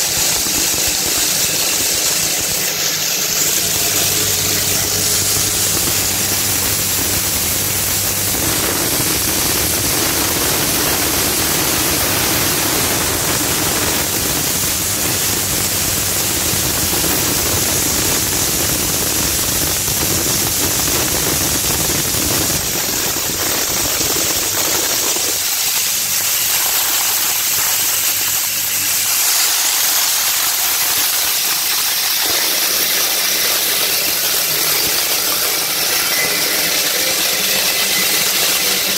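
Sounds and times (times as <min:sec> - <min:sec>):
low machine hum: 0:00.0 - 0:25.4
crushing machine grinding: 0:00.0 - 0:38.9.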